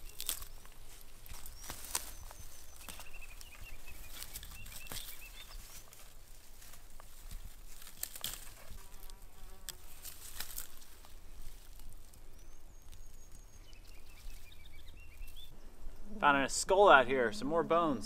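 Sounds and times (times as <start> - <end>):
dry twigs crackling and snapping: 0.0 - 15.5
insect buzzing: 8.0 - 11.0.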